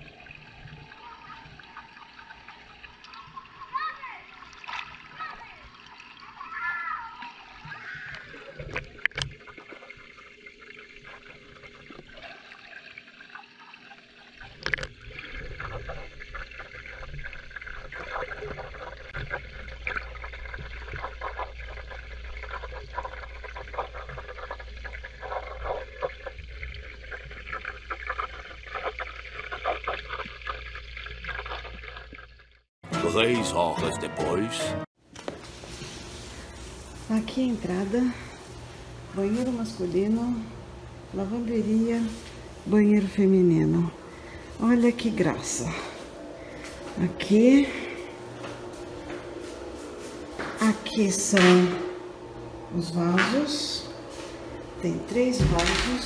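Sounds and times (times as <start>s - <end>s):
water splashing in a pool: 0.0s - 32.7s.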